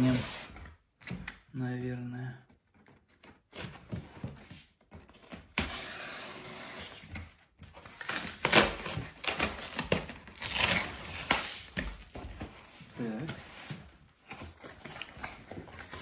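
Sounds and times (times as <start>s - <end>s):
cardboard ripping: 5.0s - 16.0s.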